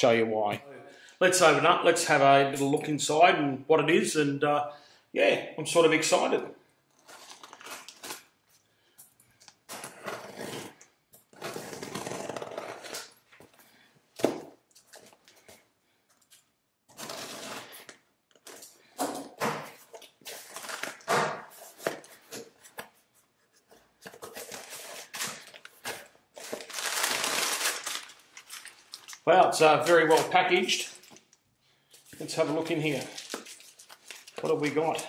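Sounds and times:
packing paper rustling: 6.9s - 8.7s, 19.8s - 35.0s
knife slitting packing tape: 9.8s - 13.2s, 16.9s - 18.6s.

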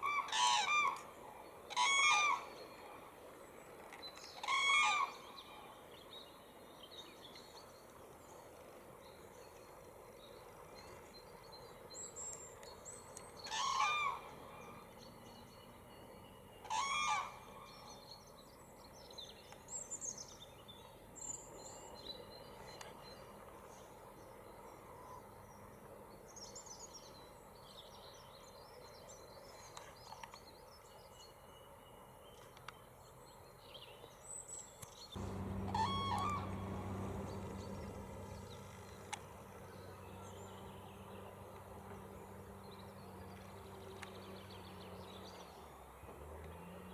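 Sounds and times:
cranes calling: 13.5s - 14.3s, 16.7s - 17.4s, 35.2s - 39.7s
small birds chirping: 33.7s - 45.6s.

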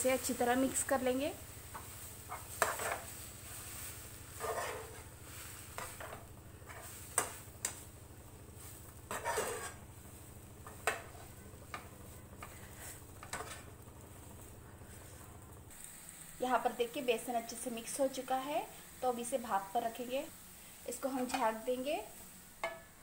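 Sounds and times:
spatula scraping frying pan: 1.6s - 7.8s, 8.5s - 13.8s.

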